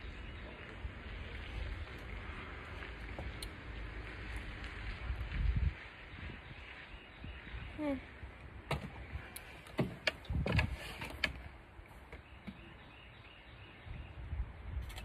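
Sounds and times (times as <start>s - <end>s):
sharp clicks and knocks: 8.7s - 11.5s.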